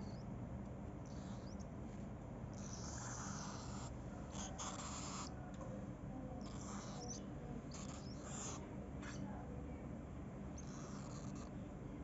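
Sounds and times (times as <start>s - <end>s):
steady low hum: 0.0s - 12.0s
cockatiel chick hissing calls: 1.1s - 1.6s, 2.6s - 5.3s, 6.5s - 9.2s.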